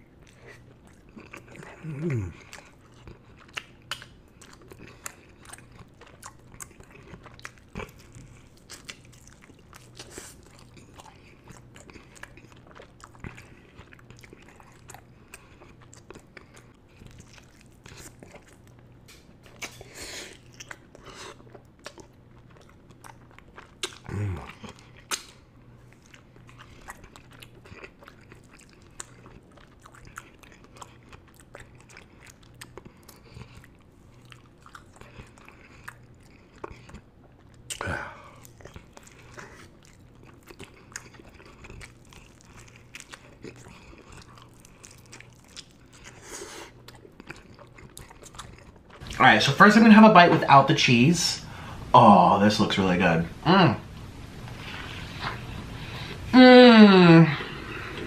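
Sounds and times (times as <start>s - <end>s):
wet chewing and smacking: 0.0s - 50.5s
low sound from eater: 49.0s - 58.0s.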